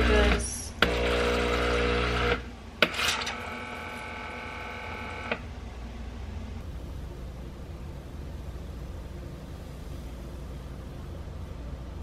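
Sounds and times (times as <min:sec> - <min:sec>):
espresso machine buzzing: 0:00.0 - 0:05.4.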